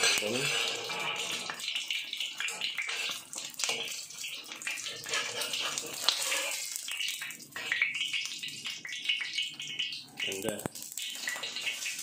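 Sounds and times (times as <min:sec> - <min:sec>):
steel spatula scraping: 0:00.0 - 0:01.8, 0:02.4 - 0:07.0, 0:11.1 - 0:12.0
egg sizzling in hot oil: 0:00.0 - 0:12.0.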